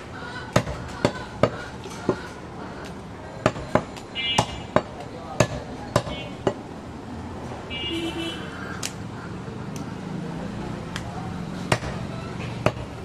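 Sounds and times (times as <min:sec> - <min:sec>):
cleaver chopping on wooden block: 0:00.5 - 0:02.2, 0:03.4 - 0:06.6, 0:11.7 - 0:13.0.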